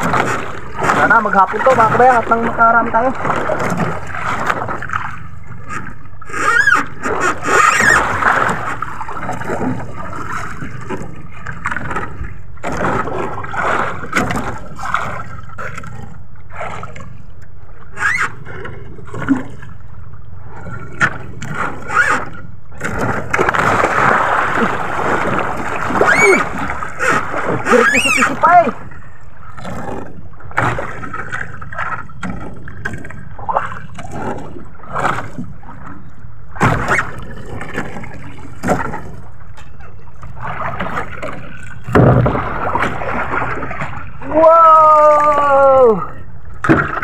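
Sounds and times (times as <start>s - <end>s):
water slapping against boat hull: 0.0s - 47.0s
fishing line scraping and knocking: 3.6s - 11.1s, 25.8s - 28.5s
fish splashing at surface: 22.9s - 28.4s.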